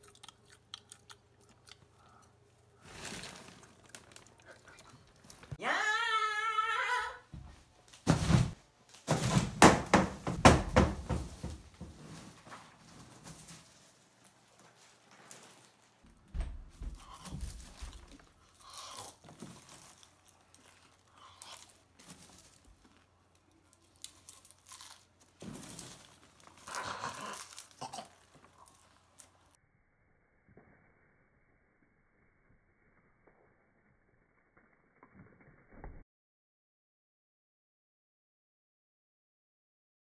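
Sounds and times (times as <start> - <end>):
person munching popcorn: 0.0 - 5.6, 16.9 - 29.6
popcorn rustling in plastic tub: 2.6 - 5.6, 10.2 - 29.6.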